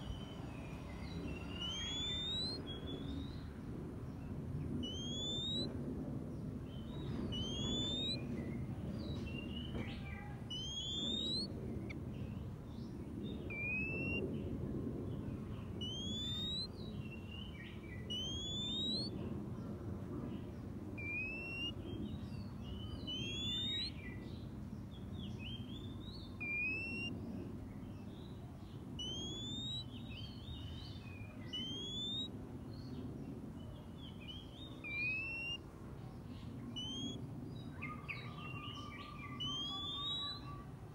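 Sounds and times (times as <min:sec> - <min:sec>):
soft bird chirps: 0:00.0 - 0:05.7, 0:06.6 - 0:14.4, 0:15.2 - 0:19.3, 0:20.4 - 0:27.1, 0:27.7 - 0:40.7
low background rumble: 0:00.0 - 0:40.9
bird rising whistled call: 0:01.3 - 0:03.2, 0:04.8 - 0:05.7, 0:07.2 - 0:08.2, 0:10.4 - 0:12.0, 0:13.5 - 0:14.2, 0:15.8 - 0:16.7, 0:18.0 - 0:19.1, 0:21.0 - 0:21.8, 0:22.8 - 0:24.0, 0:25.4 - 0:27.1, 0:29.0 - 0:30.6, 0:31.2 - 0:32.3, 0:34.2 - 0:35.6, 0:36.7 - 0:37.2, 0:37.8 - 0:40.6.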